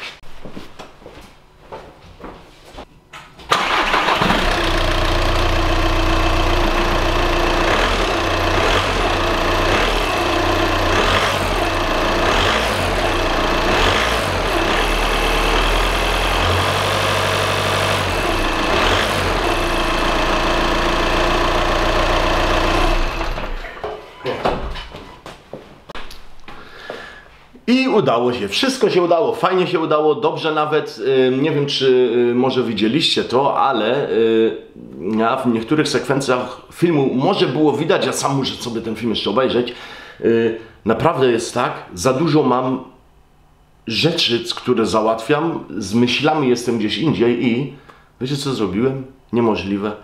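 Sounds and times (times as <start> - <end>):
diesel engine starting and idling: 3.5 - 23.8.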